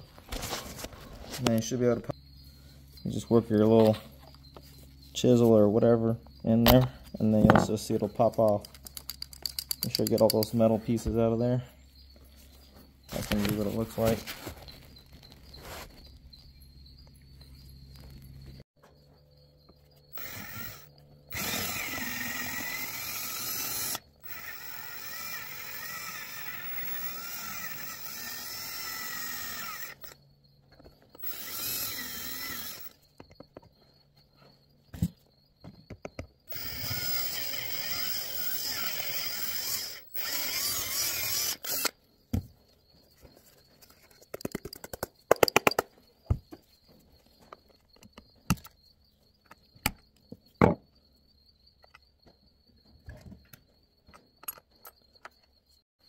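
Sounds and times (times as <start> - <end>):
rattle of sharp clicks: 8.2 - 10.7, 44.2 - 45.9
drill whining: 20.1 - 30.2, 31.1 - 33.0, 36.5 - 42.0.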